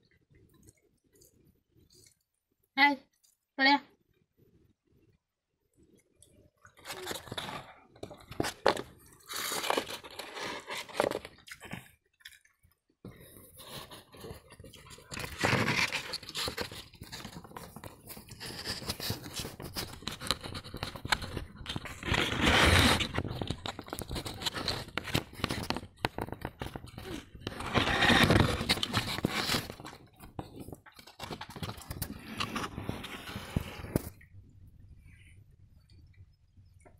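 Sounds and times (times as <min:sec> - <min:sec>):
chewing and crunching: 0:05.8 - 0:32.5.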